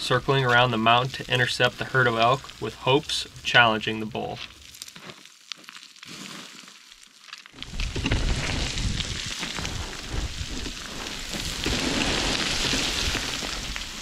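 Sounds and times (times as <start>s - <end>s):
boots crunching on scree: 0.0s - 14.0s
wind rumble on microphone: 7.6s - 13.8s.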